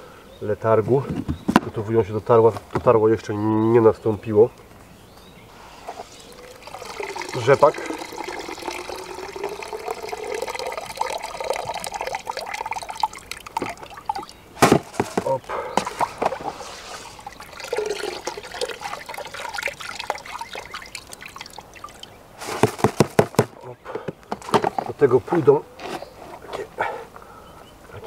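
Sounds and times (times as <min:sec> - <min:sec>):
water trickling through a sieve: 0:05.5 - 0:14.5, 0:16.0 - 0:23.1.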